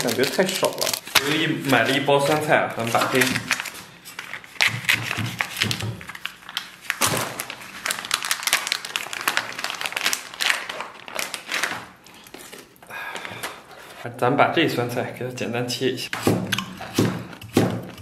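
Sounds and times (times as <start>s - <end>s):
plastic pouch crinkling: 0.0s - 13.8s.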